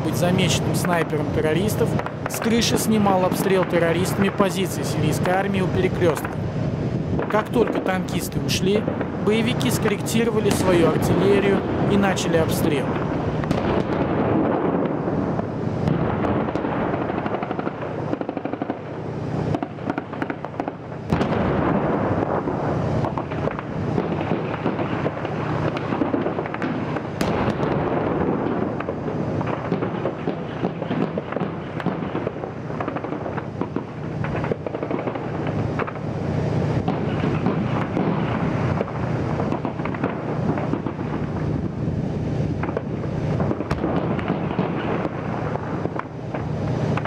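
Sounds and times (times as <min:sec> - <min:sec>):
heavy gunfire and shelling: 0:07.2 - 0:36.1, 0:36.8 - 0:41.7, 0:42.6 - 0:47.0
loud sharp crack: 0:15.9 - 0:36.1, 0:36.8 - 0:41.4.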